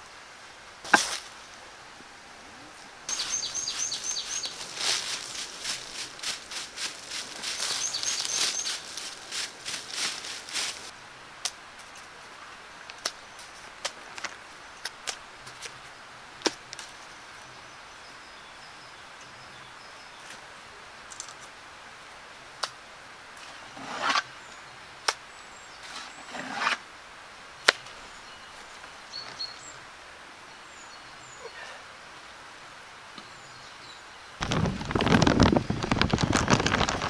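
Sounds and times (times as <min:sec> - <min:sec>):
steady outdoor hiss: 0:00.0 - 0:37.0
faint bird chirps: 0:03.1 - 0:05.4, 0:07.4 - 0:09.0, 0:30.4 - 0:31.9
stone scraping: 0:23.6 - 0:24.2, 0:25.8 - 0:26.8.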